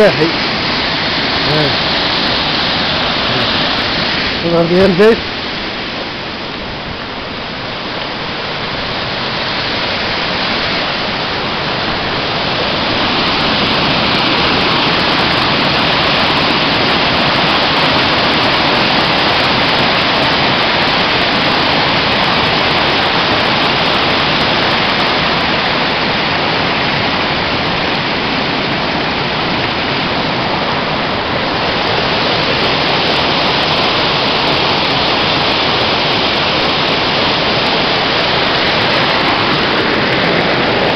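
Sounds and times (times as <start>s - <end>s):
waterfall rushing: 0.0s - 40.9s.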